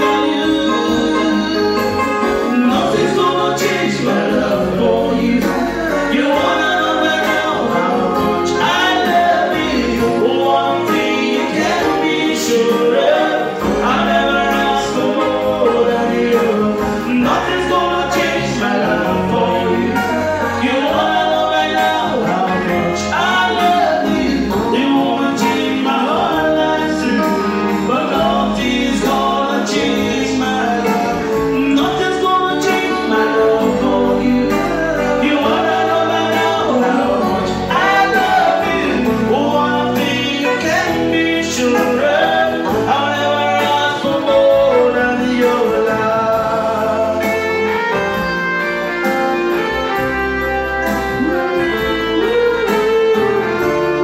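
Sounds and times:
man singing into microphone: 0.0s - 48.4s, 49.5s - 54.0s
guitar accompaniment: 0.0s - 54.0s.

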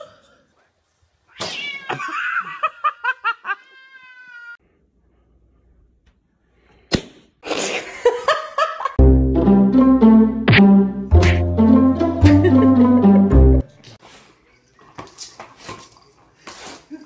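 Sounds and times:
cat meowing: 1.3s - 2.0s, 3.7s - 4.6s.

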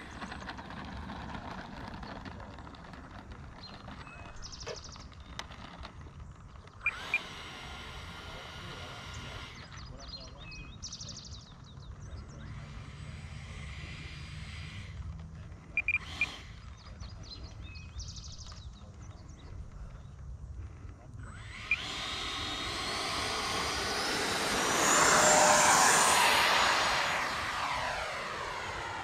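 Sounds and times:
electric ducted fan whine: 6.7s - 11.2s, 12.1s - 17.6s, 21.2s - 29.0s.

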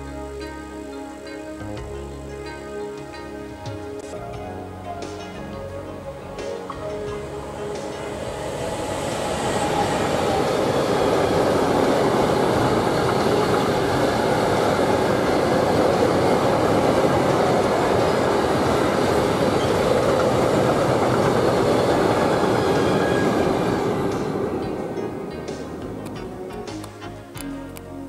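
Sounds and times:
steel wheels rolling on rails: 6.5s - 26.2s.

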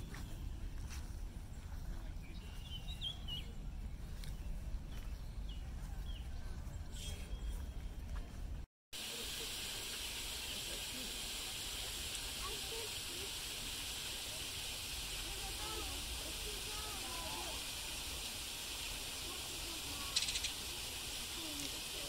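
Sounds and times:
steady even hiss: 9.0s - 22.0s
short high bird chirps: 20.1s - 20.6s.

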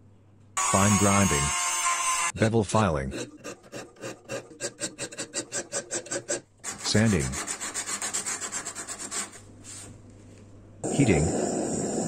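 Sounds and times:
file rasping on steel blade: 0.8s - 9.4s
sandpaper sanding blade: 3.1s - 9.4s.

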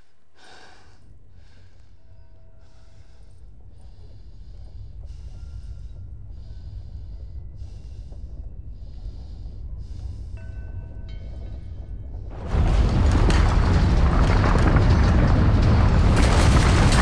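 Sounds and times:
low rumble: 1.2s - 17.0s.

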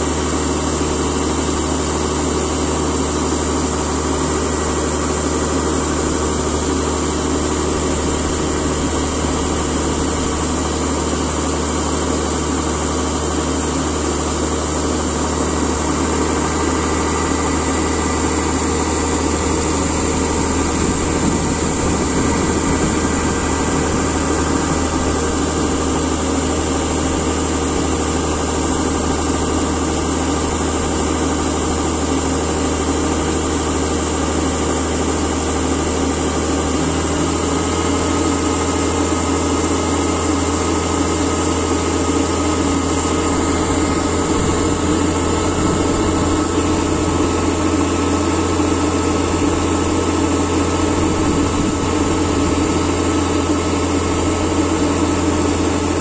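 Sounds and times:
diesel engine running: 0.0s - 56.0s
grain pouring from auger: 0.0s - 56.0s.

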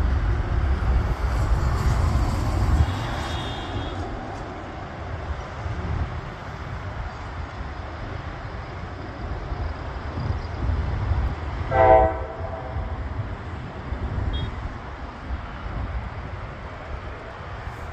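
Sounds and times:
jet engine rumble: 0.0s - 17.9s
horn blast: 11.7s - 12.9s.

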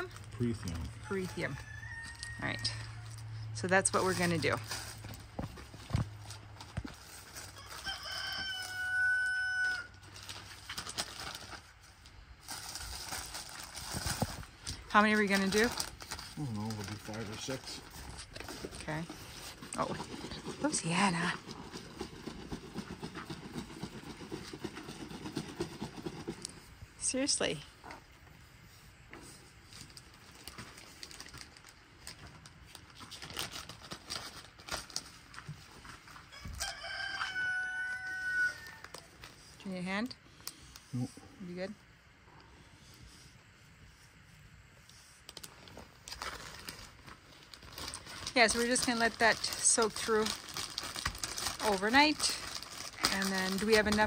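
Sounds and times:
rooster crowing: 1.2s - 3.3s, 7.6s - 10.0s, 36.3s - 39.1s
plastic zip bag rustling: 9.4s - 25.6s, 29.7s - 37.3s, 45.3s - 54.0s.

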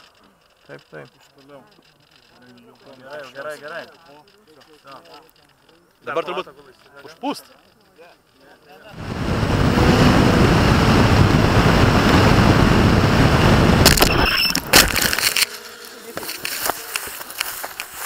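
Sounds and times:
light clicks: 0.0s - 8.5s
firework motor rushing hiss: 8.9s - 18.0s
wind rush: 9.0s - 14.7s
sharp cracks: 13.6s - 15.7s.

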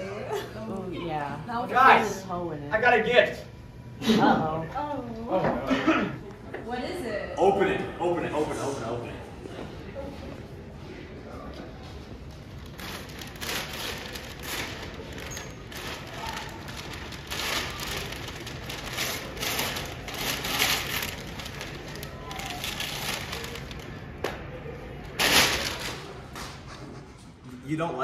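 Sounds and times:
wrapping paper tearing and crumpling: 12.5s - 24.2s, 25.1s - 26.2s.

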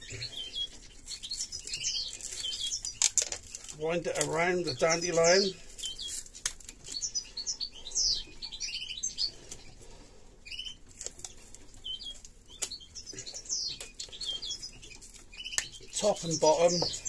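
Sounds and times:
finches chirping: 0.0s - 17.0s.

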